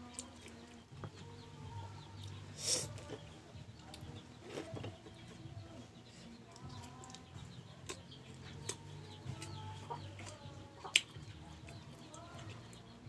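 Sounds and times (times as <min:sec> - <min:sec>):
chickens clucking: 0:02.2 - 0:12.8
chewing crunches: 0:07.8 - 0:09.5.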